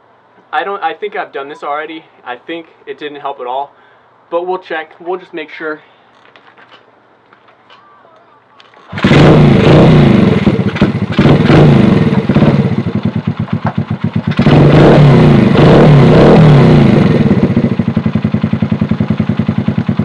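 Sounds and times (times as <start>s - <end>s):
motorcycle engine revving: 8.9s - 20.0s.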